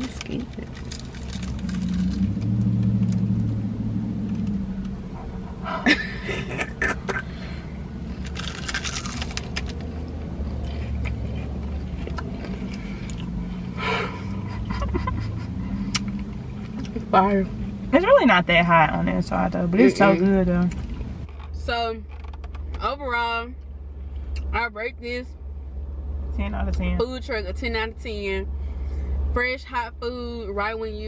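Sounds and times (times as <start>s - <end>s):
low car cabin hum: 0.0s - 31.0s
people biting and chewing: 8.1s - 9.8s, 10.5s - 13.6s.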